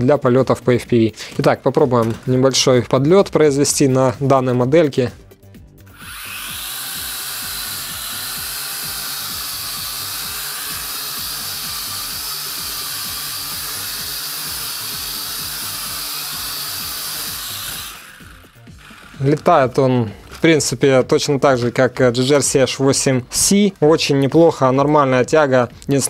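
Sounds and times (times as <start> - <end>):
quadcopter propellers whirring: 5.9 - 19.5.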